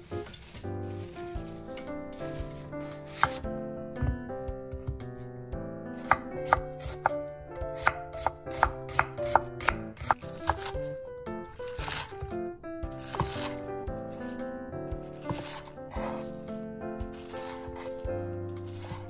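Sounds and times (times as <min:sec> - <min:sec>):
background music: 0:00.0 - 0:19.0
knife chopping on wooden board: 0:02.2 - 0:05.2, 0:06.0 - 0:11.0, 0:11.6 - 0:14.0, 0:15.0 - 0:19.0.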